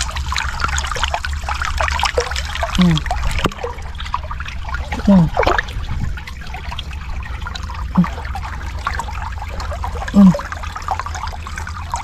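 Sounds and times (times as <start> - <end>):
water trickling and splashing: 0.0 - 12.0
low rumble: 2.6 - 12.0
short voice sounds: 2.8 - 3.1, 5.0 - 5.4, 8.0 - 8.2, 10.2 - 10.5.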